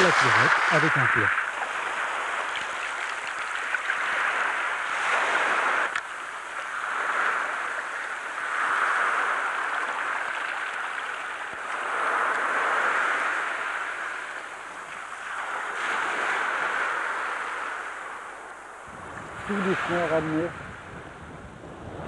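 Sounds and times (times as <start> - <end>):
surf breaking on shore: 0.0 - 22.0.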